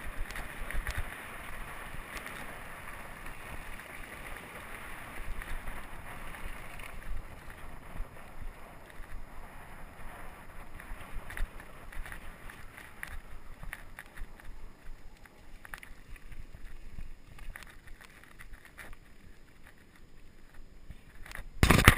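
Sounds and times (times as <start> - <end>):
bike clicks and rattles: 0.0 - 21.9.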